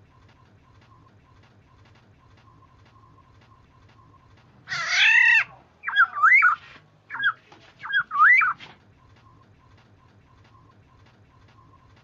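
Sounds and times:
bird harsh mewing call: 4.7s - 8.6s
bird fluty whistles: 5.8s - 8.6s.

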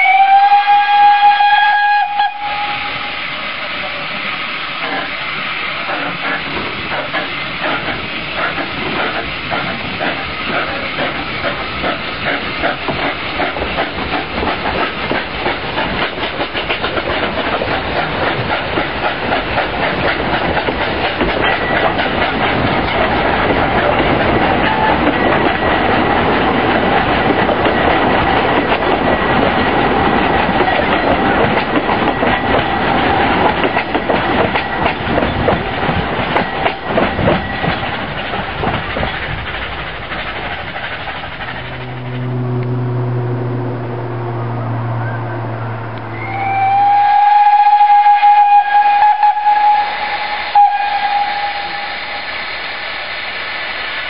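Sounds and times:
train wheels clattering over rail joints: 4.8s - 42.2s
steady low hum: 40.9s - 46.5s
thin steady squeal: 41.2s - 46.4s.

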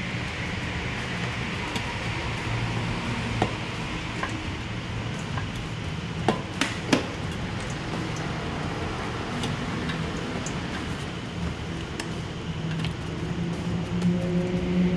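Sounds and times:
steady low hum: 0.0s - 14.9s
sharp knocks and clicks: 5.1s - 8.3s.

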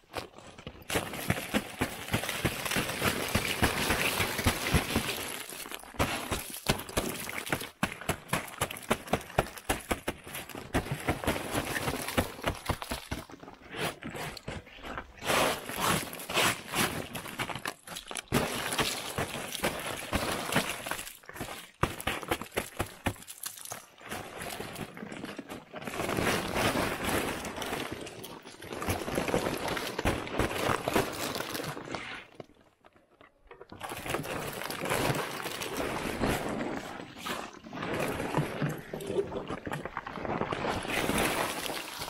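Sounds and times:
frozen canvas crinkling and scraping: 0.2s - 42.0s.

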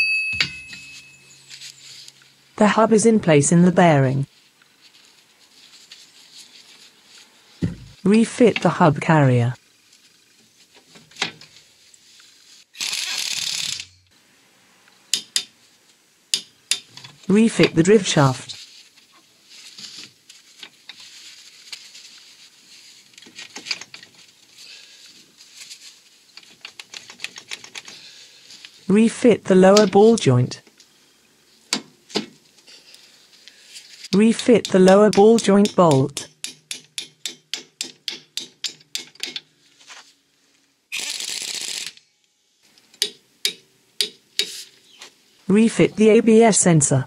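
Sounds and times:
ratchet wrench clicking: 12.8s - 14.0s
gloved hands clicking and tapping metal: 15.1s - 15.6s, 16.3s - 17.0s, 34.6s - 39.5s, 42.8s - 44.6s.

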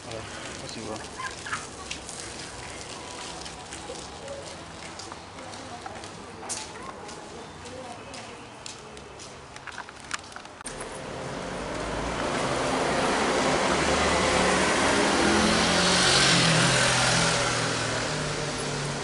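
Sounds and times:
car driving past: 10.7s - 19.0s.

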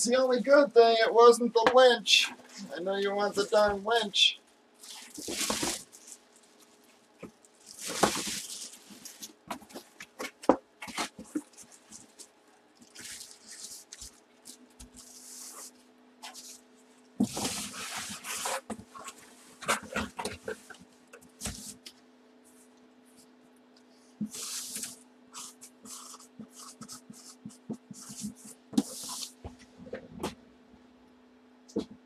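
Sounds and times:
plastic and cardboard rustling: 4.8s - 21.9s, 24.2s - 30.4s.

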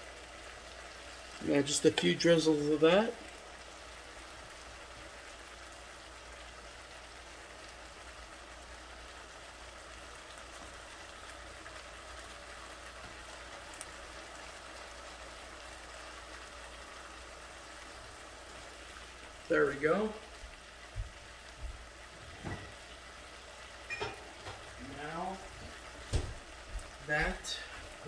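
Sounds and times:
vegetables sizzling in frying pan: 0.0s - 28.0s.

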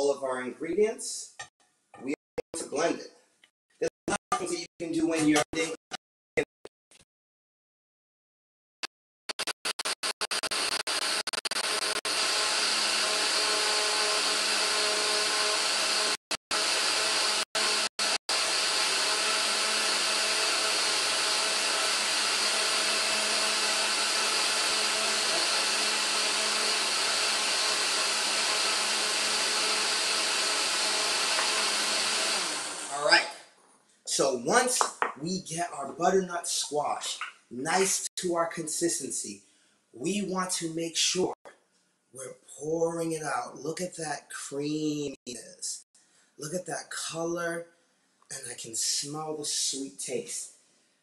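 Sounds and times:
blender running: 9.7s - 33.2s.

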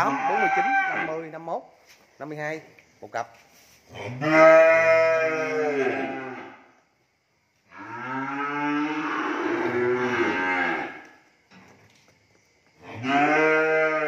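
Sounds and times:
cattle mooing: 4.2s - 6.6s, 7.8s - 11.1s, 13.0s - 14.0s.

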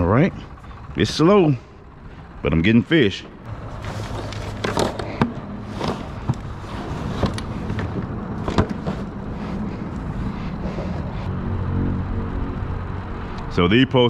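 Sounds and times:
steady low rumble: 0.0s - 14.0s
plastic knocks and clatter: 7.1s - 9.0s.

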